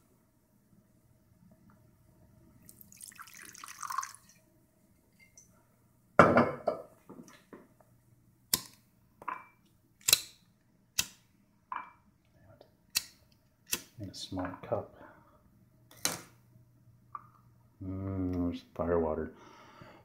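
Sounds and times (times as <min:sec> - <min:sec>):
liquid pouring into a glass: 0:02.6 - 0:04.4
glass knocking on a table: 0:06.2 - 0:07.3.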